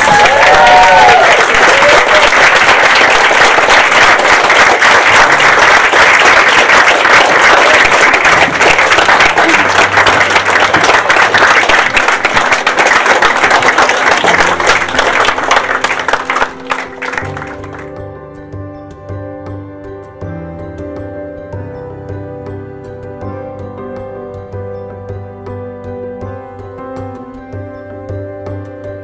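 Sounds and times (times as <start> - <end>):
crowd applauding: 0.0 - 17.9.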